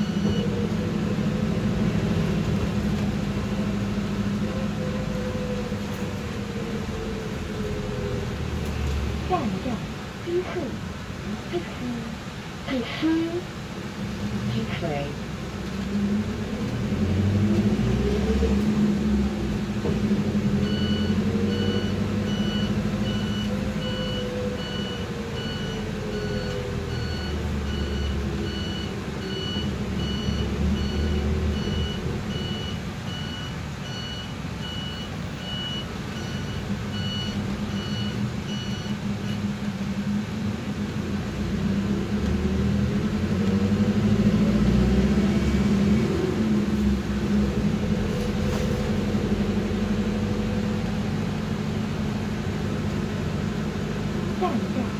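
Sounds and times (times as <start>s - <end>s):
bus engine hum and whine: 0.0s - 54.9s
electronic warning beeps: 20.6s - 39.4s.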